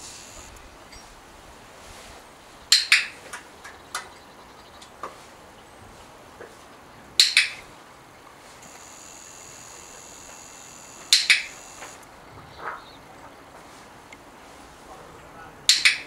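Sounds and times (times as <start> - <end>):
dog-training clicker clicking: 10.3 - 12.1, 15.7 - 16.0.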